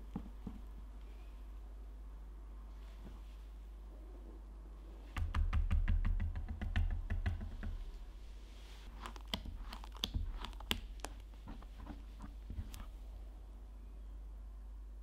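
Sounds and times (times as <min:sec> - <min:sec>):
spatula making wet clicks: 0:09.0 - 0:11.6.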